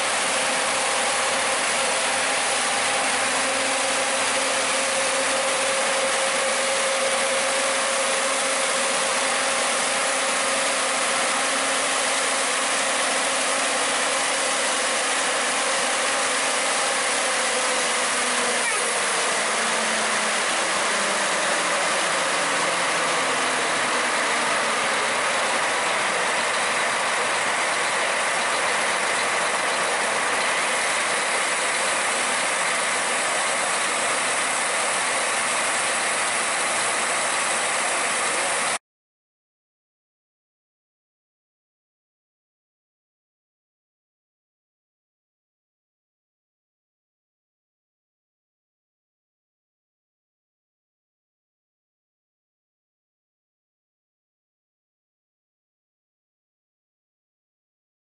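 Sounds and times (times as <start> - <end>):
locomotive engine running: 0.0 - 38.8.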